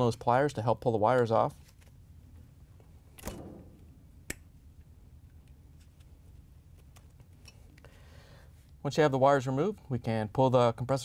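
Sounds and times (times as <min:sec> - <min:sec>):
sharp click: 0:03.2 - 0:04.5.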